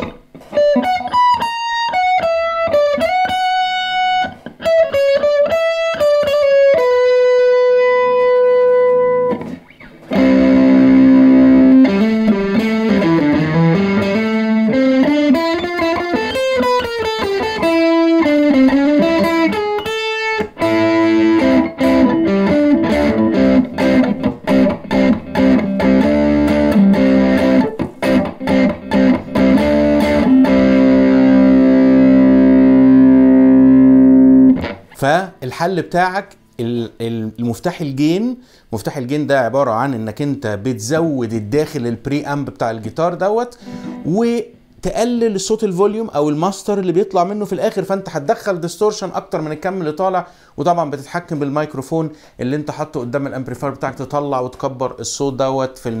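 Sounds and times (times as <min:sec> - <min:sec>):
distorted electric guitar lead: 0:00.0 - 0:35.0, 0:43.6 - 0:44.7.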